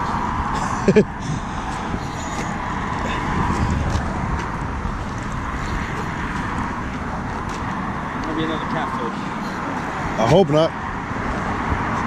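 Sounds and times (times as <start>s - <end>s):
wind on microphone: 0.0s - 8.0s
highway traffic hum: 0.0s - 12.0s.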